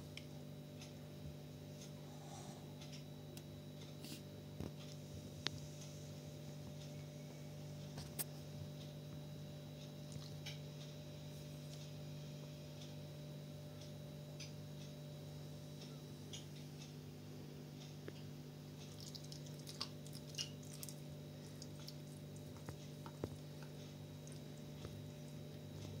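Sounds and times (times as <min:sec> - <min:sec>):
puppies suckling wet clicks: 0:10.0 - 0:10.6, 0:18.8 - 0:26.0.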